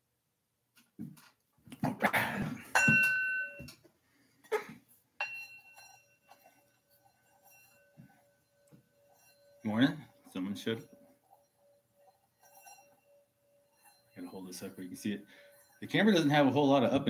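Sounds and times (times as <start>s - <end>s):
singing bowl ringing: 2.7s - 3.8s, 5.2s - 17.0s.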